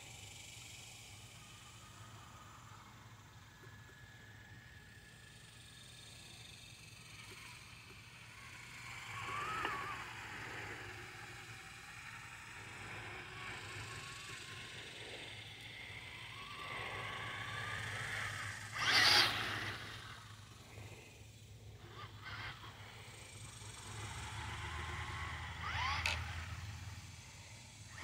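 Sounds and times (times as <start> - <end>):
electric motor whining: 6.4 - 28.0.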